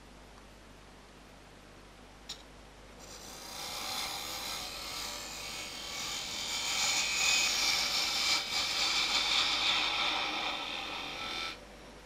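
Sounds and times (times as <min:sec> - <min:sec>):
wood lathe cutting hiss: 0:03.0 - 0:11.6.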